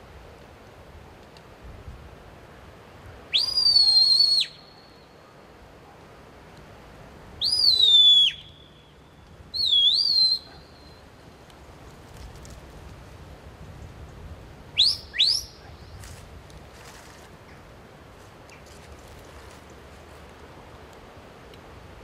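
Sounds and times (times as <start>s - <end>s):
high piercing whistles: 3.3s - 5.2s, 7.4s - 11.0s, 14.8s - 16.0s.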